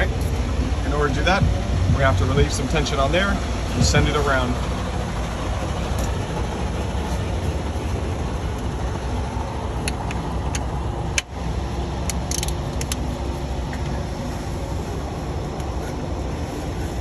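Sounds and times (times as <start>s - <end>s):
engine idling: 0.0s - 17.0s
metallic tool clicks: 12.0s - 13.0s.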